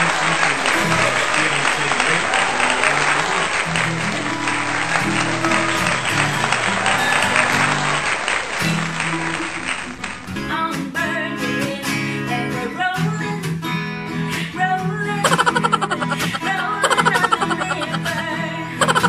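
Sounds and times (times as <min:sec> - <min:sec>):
acoustic guitar strumming: 0:00.0 - 0:19.0
woman singing: 0:10.4 - 0:13.6, 0:14.4 - 0:19.0.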